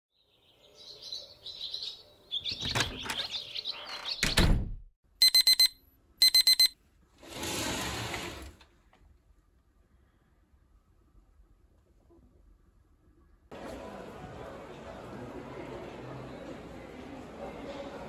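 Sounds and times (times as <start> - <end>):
chirps: 0.2 - 4.4
electronic alarm beeping: 5.2 - 6.8.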